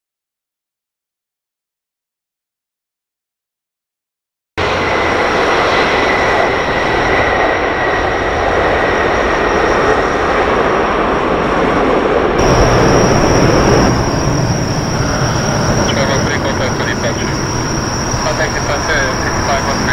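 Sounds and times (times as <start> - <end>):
jet engine roar with whine: 4.6 - 19.9.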